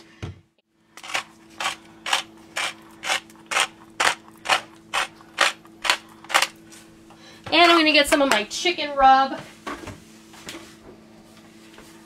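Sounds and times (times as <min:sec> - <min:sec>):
pepper mill grinding: 0:01.0 - 0:06.6.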